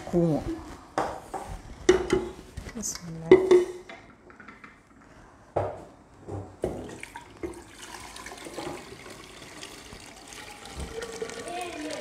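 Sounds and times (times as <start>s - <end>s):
juice pouring into a glass pitcher: 6.8s - 12.0s
juice splashing: 6.8s - 12.0s.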